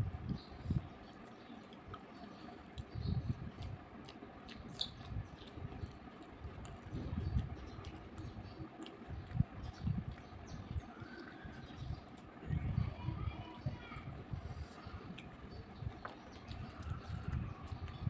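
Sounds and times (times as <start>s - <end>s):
mouth chewing soft food: 0.0s - 12.9s, 13.5s - 18.0s
fingers squishing food: 0.1s - 12.8s, 13.6s - 18.0s.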